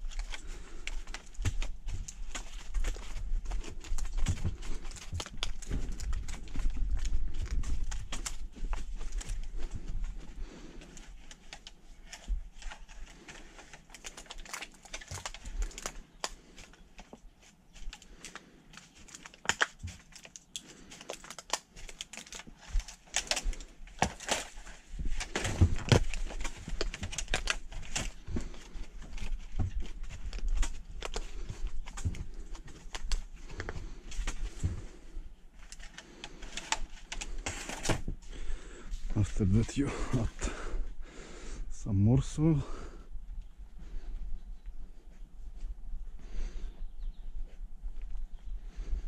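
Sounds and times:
taps and rustles: 0.1 - 35.0.

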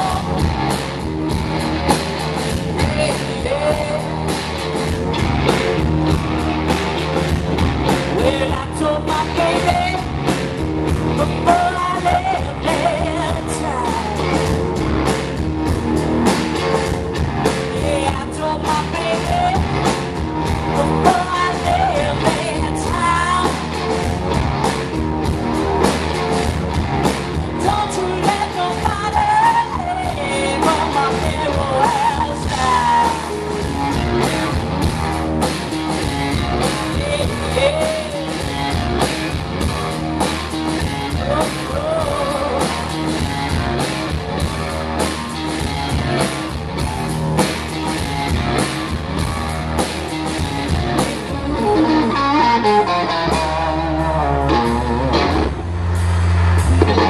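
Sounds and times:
person singing: 0.0 - 0.5, 2.7 - 4.3, 8.2 - 10.2, 11.2 - 14.4, 17.8 - 19.8, 20.8 - 23.7, 27.5 - 33.6, 36.7 - 38.6, 41.1 - 42.9
live blues band: 0.0 - 57.0.

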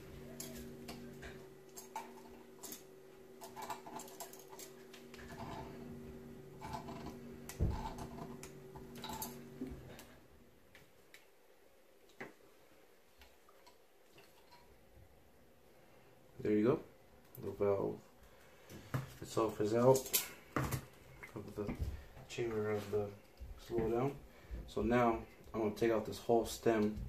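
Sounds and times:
steady low hum: 0.0 - 13.1.

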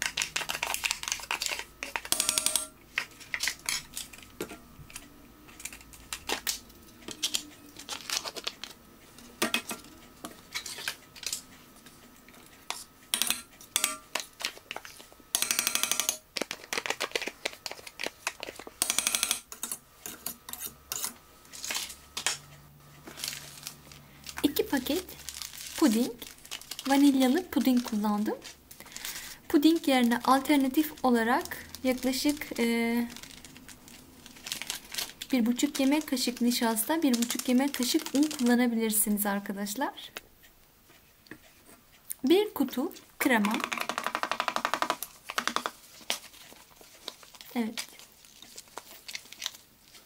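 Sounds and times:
packaging crinkling: 0.0 - 2.1, 4.9 - 8.8, 16.3 - 18.8, 23.0 - 38.6, 43.5 - 50.0.

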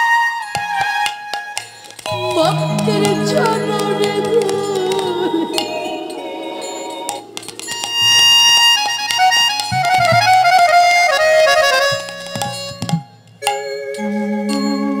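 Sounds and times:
hand drum strokes: 1.8 - 13.2
harmonium chords and melody: 1.9 - 15.0.

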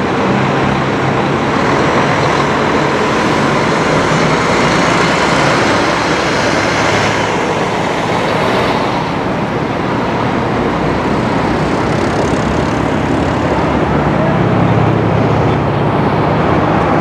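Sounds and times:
distant jet engines roaring: 0.0 - 17.0.

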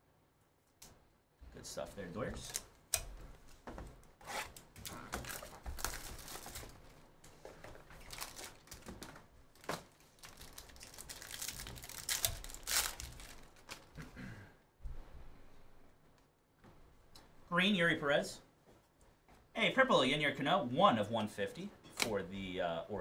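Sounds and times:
foil wrapper tearing and crinkling: 4.8 - 6.8, 7.9 - 8.9, 9.6 - 14.0.

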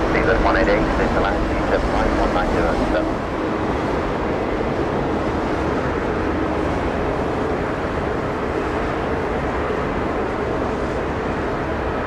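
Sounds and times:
faint hum: 0.0 - 4.9
jet engine rushing: 0.0 - 9.6.

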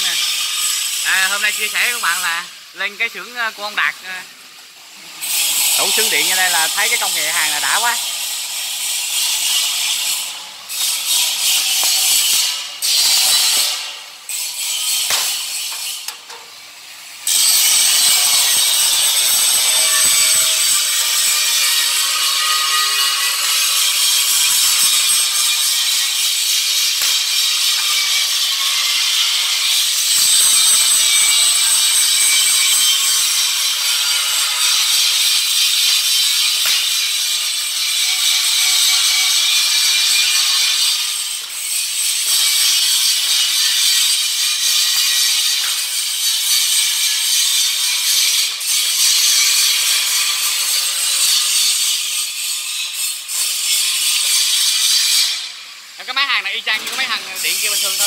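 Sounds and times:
stud welding gun hiss bursts: 0.0 - 58.0
stud welding gun click: 15.0 - 16.5.

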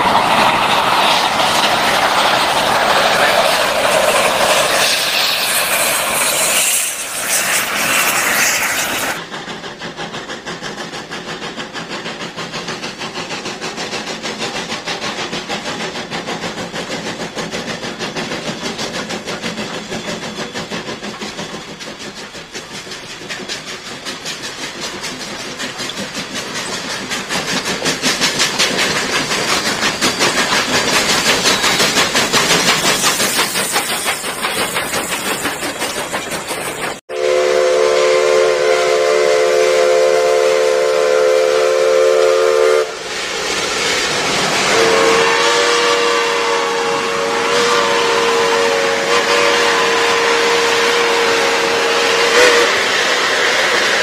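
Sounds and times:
steam hiss: 0.0 - 54.0
steam locomotive chuffing: 0.0 - 54.0
steam whistle chord: 37.1 - 43.1, 44.7 - 52.9.

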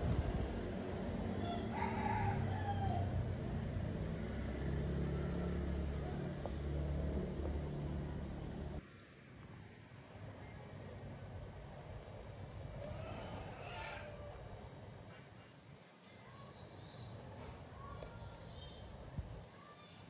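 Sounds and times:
steady low rumble: 0.0 - 1.8, 5.5 - 8.8
rooster crowing: 1.3 - 3.6, 4.3 - 6.6, 12.8 - 14.6.

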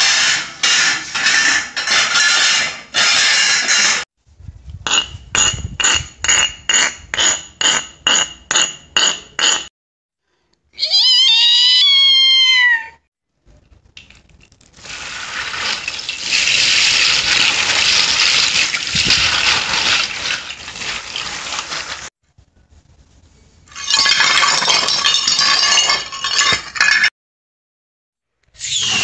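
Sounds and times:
glass clinking and shattering: 0.0 - 4.0, 14.4 - 22.1, 23.7 - 27.1
cat meowing: 10.8 - 13.0.

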